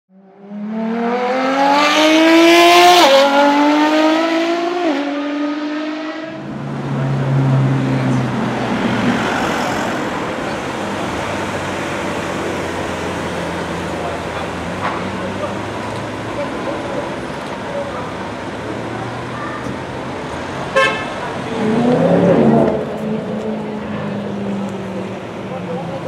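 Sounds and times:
street noise: 0.1s - 26.0s
sports car engine accelerating: 0.2s - 20.6s, 21.3s - 26.0s.

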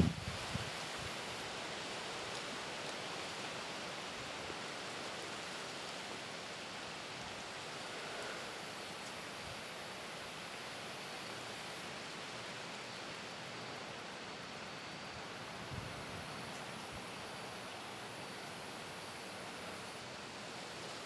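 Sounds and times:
wind buffeting microphone: 0.0s - 0.8s
wind rushing through trees: 0.0s - 21.0s.

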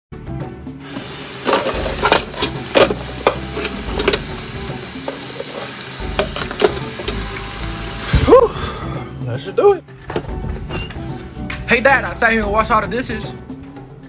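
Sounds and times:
running tap water: 0.8s - 8.8s.

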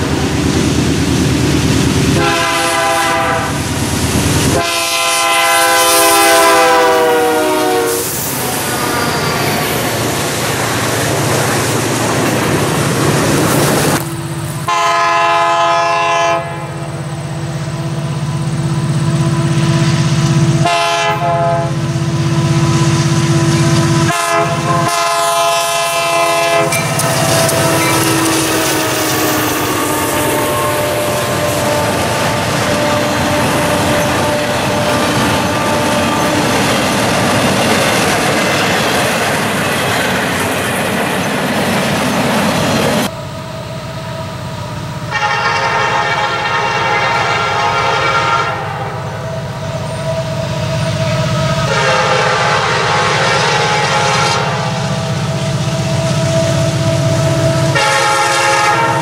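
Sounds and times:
freight cars rolling on rails: 0.0s - 14.8s, 22.2s - 43.2s
train cars rumbling and clattering: 0.0s - 59.0s
locomotive air horn: 2.1s - 3.7s, 4.4s - 10.1s, 13.9s - 18.0s, 19.1s - 37.4s, 45.0s - 59.0s.

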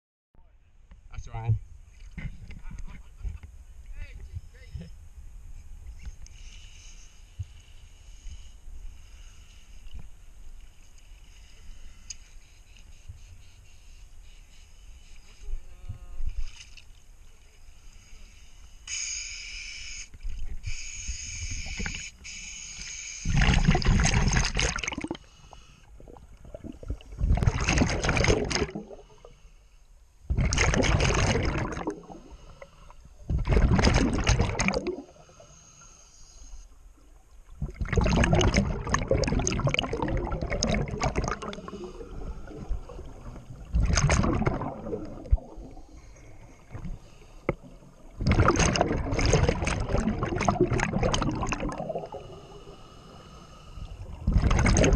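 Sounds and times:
underwater bubbling exhalations: 23.2s - 25.3s, 25.9s - 29.2s, 30.3s - 32.6s, 33.2s - 35.5s, 37.5s - 52.7s, 54.0s - 54.9s.

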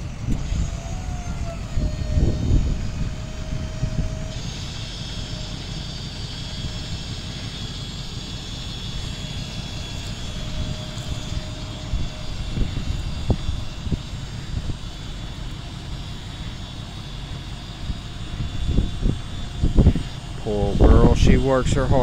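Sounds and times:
truck engine droning: 0.0s - 22.0s.

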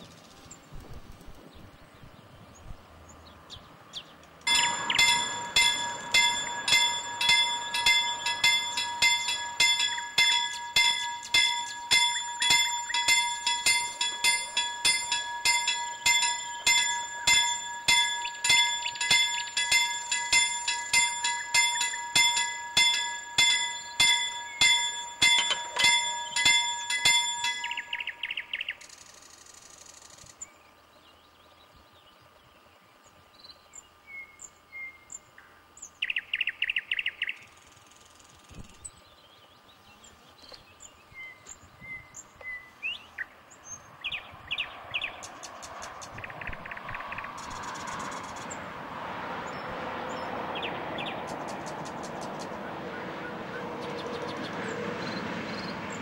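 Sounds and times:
birds chirping: 1.5s - 29.0s, 38.5s - 48.6s
level-crossing warning bell: 4.5s - 28.7s.

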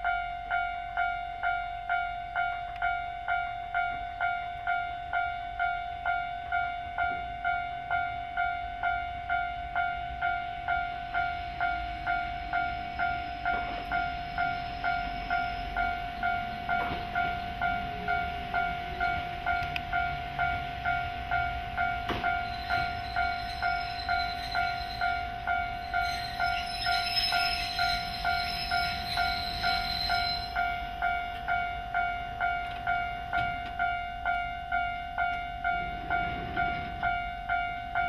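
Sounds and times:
electric train rolling in: 0.0s - 38.0s
level-crossing warning bell ringing: 0.0s - 38.0s
high brake squeal: 13.1s - 16.0s, 22.4s - 30.8s.

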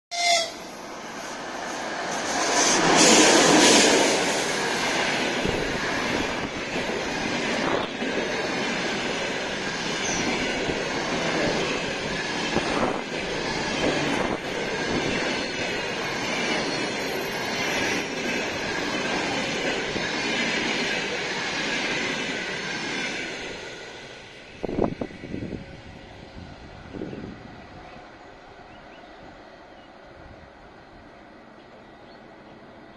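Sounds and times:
train wheels rumbling on rail: 0.1s - 32.9s
thin steady squeal: 13.4s - 20.2s, 21.1s - 28.3s.

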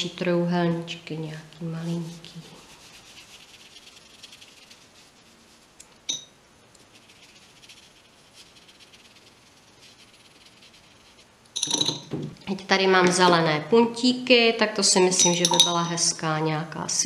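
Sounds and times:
paintbrush brushing on paper: 0.7s - 6.1s, 6.8s - 11.4s
short clink: 11.6s - 12.1s.

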